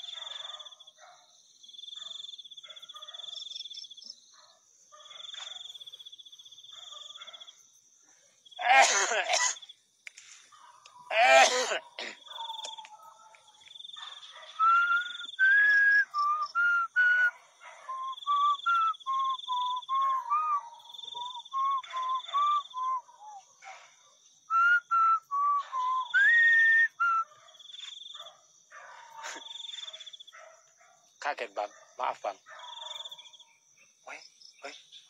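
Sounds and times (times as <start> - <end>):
insect trilling: 10.8 - 30.4
person whistling a tune: 14.6 - 17.3, 17.9 - 23.4, 24.6 - 27.3.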